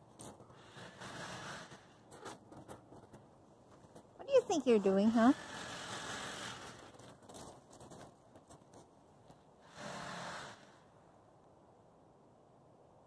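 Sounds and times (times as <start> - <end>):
faint rustling: 6.0 - 9.6.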